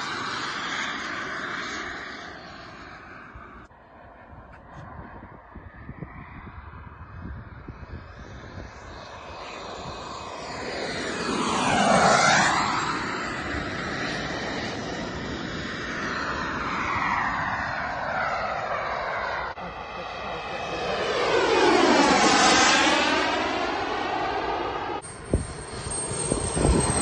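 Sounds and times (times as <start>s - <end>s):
model jet engines passing: 0.0s - 27.0s.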